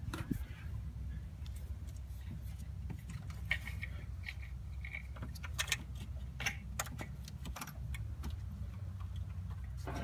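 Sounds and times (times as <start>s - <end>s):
low steady rumble: 0.0s - 10.0s.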